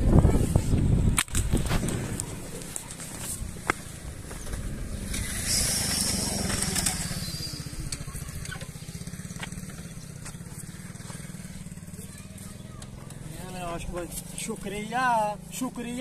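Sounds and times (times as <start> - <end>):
small engine idling: 1.9 - 16.0
loud hissing: 4.8 - 7.8.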